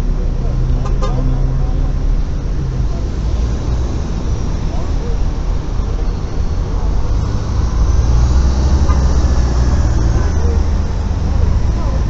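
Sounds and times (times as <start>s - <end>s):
bus engine pulling away: 0.0s - 12.0s.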